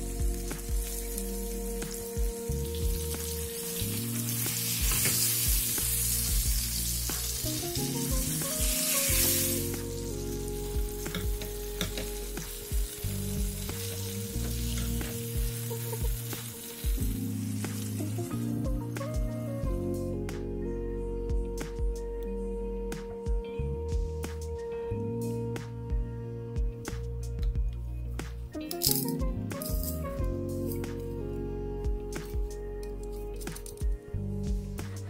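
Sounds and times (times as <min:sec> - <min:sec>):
chicken sizzling in oil: 0:00.0 - 0:18.6
soft background music: 0:00.0 - 0:35.0.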